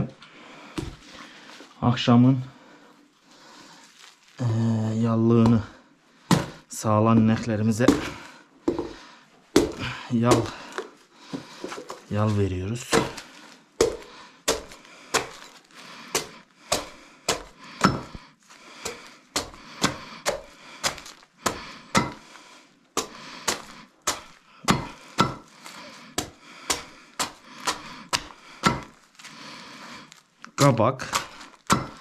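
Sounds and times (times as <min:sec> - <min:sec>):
knife chopping onto stone slab: 0:12.9 - 0:13.2, 0:13.8 - 0:15.5, 0:16.1 - 0:18.2, 0:18.8 - 0:22.2, 0:23.0 - 0:25.5, 0:26.2 - 0:28.9, 0:31.1 - 0:32.0.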